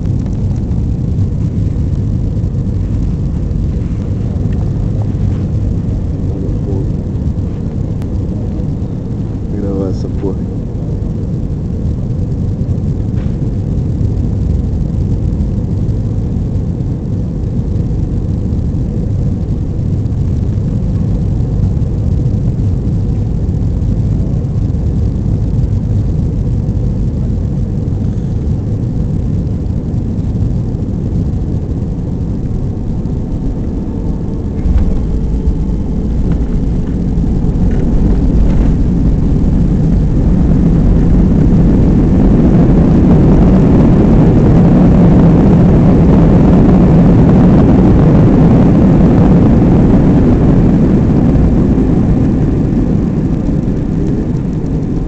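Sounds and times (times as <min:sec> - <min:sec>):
airliner cabin engine rush: 0:00.0 - 0:55.0
wheels touching down thump: 0:34.4 - 0:40.3.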